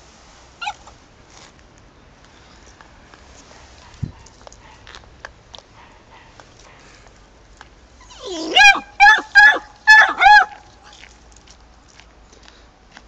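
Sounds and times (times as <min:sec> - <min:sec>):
puppy yelping: 0:00.6 - 0:01.0, 0:08.0 - 0:11.0.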